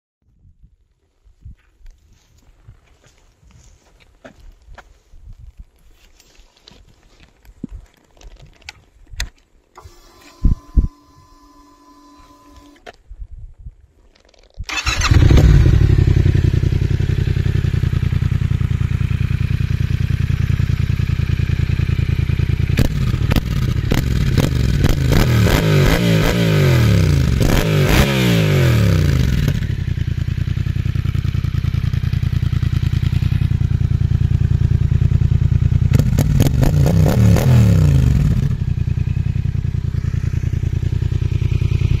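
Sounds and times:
motorcycle engine idling and revving: 0:14.7 - 0:42.0.

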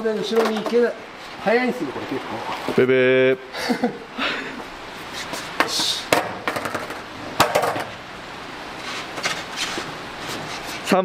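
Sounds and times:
skateboard clacking on concrete: 0:05.6 - 0:08.0.

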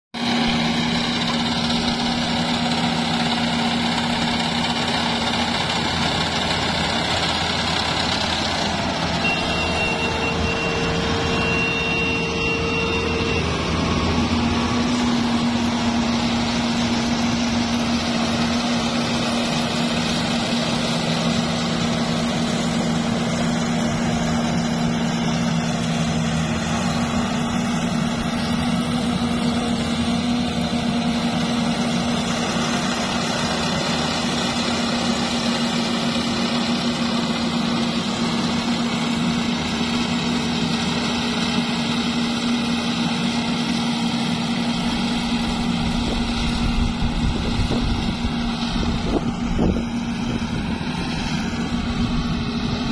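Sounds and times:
combine harvester engine drone: 0:00.2 - 0:52.9
low tone: 0:08.8 - 0:19.2.

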